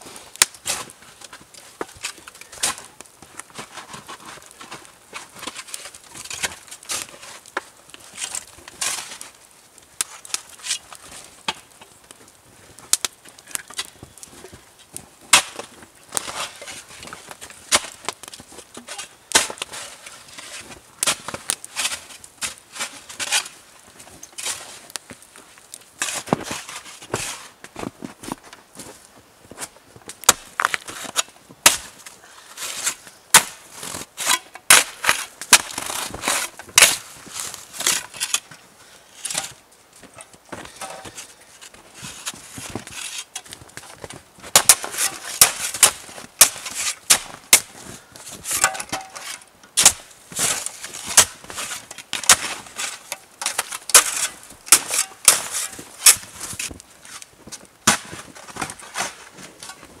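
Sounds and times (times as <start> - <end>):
shovels crunching into snow: 0.0 - 9.4, 15.3 - 25.3, 26.0 - 38.5, 39.1 - 60.0.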